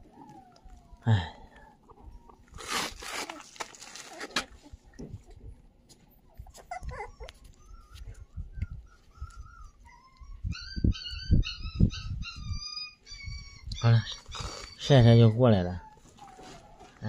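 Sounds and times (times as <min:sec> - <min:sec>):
puppy whimpering: 0:06.1 - 0:17.0.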